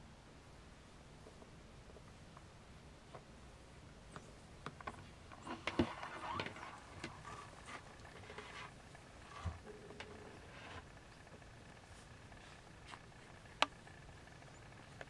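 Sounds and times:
kittens rustling: 4.0 - 15.0.

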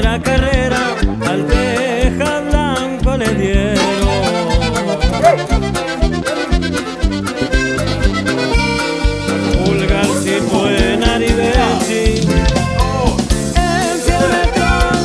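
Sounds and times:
accordion-led regional music: 0.0 - 15.0
steady drum beat: 3.6 - 15.0.

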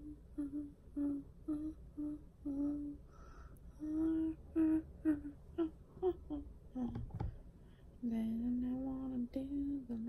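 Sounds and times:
woman humming: 0.0 - 3.0, 3.7 - 7.0.

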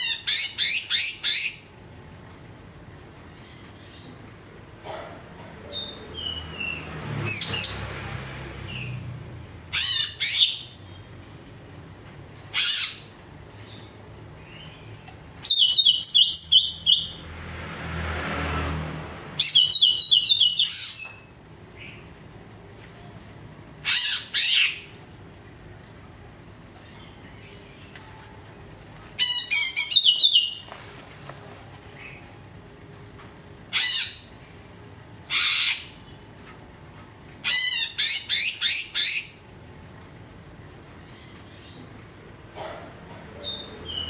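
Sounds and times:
bird trilling: 14.6 - 17.2, 19.4 - 21.2, 29.2 - 30.7.

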